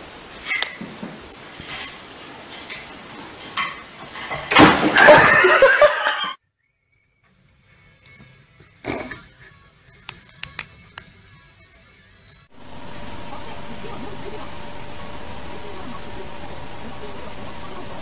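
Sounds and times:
loud clatter of objects falling: 3.4 - 5.6.

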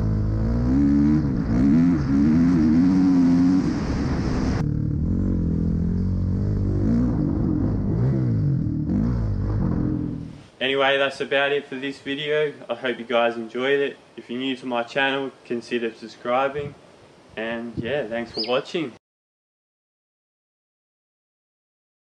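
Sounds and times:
dirt bike engine revving: 0.0 - 10.4
wind noise: 0.8 - 4.7, 16.5 - 18.5.

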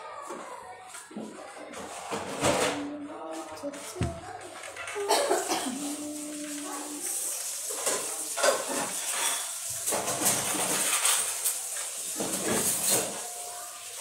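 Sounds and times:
metal dishes clattering: 4.0 - 13.5.

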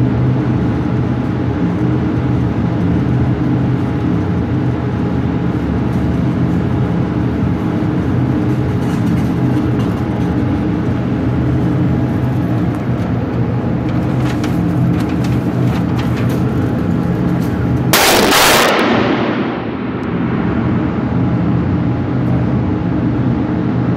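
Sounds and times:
steady mechanical hum: 0.0 - 23.9
loud gunshot: 17.9 - 20.7.

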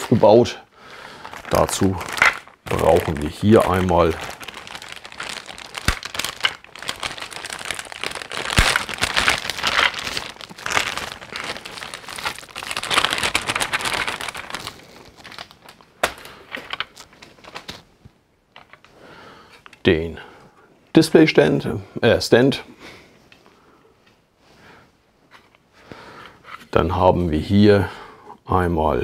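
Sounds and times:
plastic bag crinkling: 0.0 - 18.9.

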